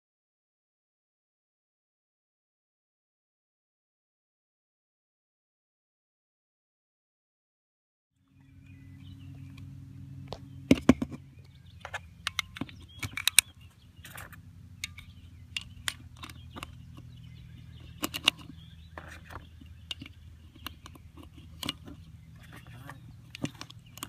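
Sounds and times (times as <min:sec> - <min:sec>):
cartridges clicking into magazine: 0:12.2 - 0:16.8.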